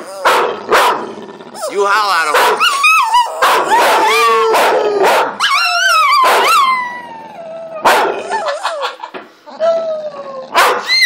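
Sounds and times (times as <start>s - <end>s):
dog howling: 0.0s - 0.4s, 1.5s - 11.0s
dog yipping: 1.6s - 7.0s, 10.5s - 11.0s.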